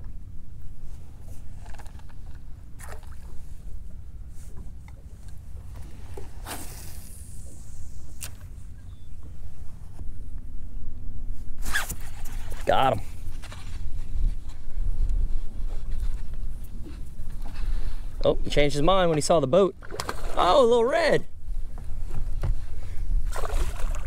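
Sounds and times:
water lapping against boat hull: 0.9s - 10.0s, 18.9s - 20.8s, 21.6s - 24.0s
wind rumbling on microphone: 5.5s - 19.0s, 21.2s - 24.0s.

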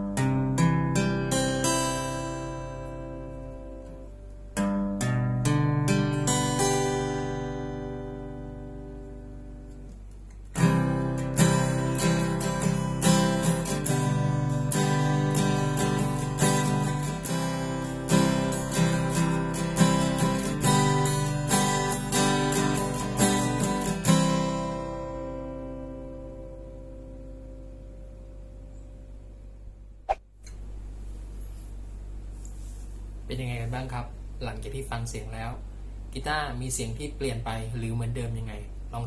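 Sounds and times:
acoustic guitar strummed chords: 0.0s - 29.1s.

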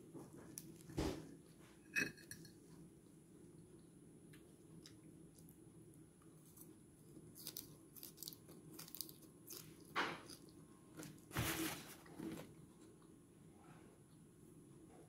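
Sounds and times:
food crunching on a plate: 6.6s - 10.6s.

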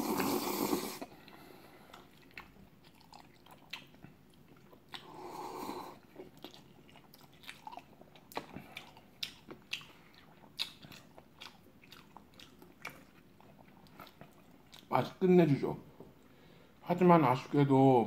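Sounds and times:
noodle slurp: 0.0s - 1.2s
wet chewing clicks: 1.2s - 5.2s, 6.0s - 14.9s.

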